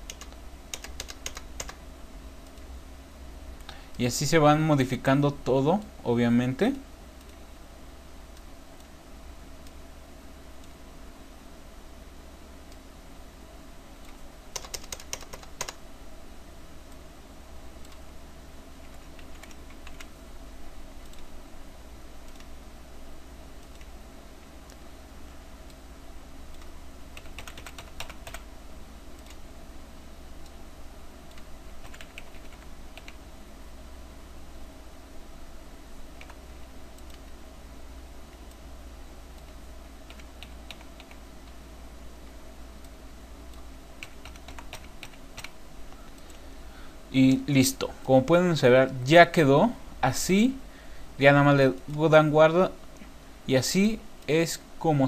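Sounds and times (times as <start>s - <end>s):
keyboard keystrokes: 0.0s - 1.8s, 14.0s - 15.8s, 18.8s - 20.1s, 26.5s - 28.4s, 31.3s - 33.2s, 39.4s - 41.6s, 44.0s - 45.6s
low electrical hum: 0.0s - 55.0s.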